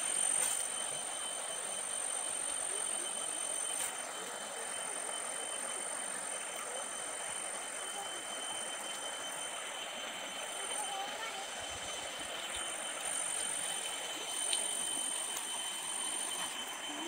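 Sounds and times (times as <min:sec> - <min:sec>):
rustling hiss: 0:00.0 - 0:01.2
cicadas droning: 0:00.0 - 0:17.0.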